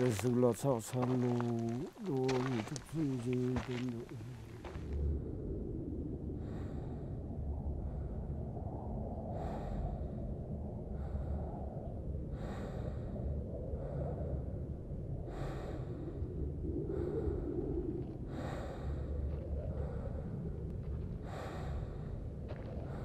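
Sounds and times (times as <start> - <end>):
low steady rumble: 0.0 - 23.0
heavy rhythmic breathing: 9.3 - 23.0.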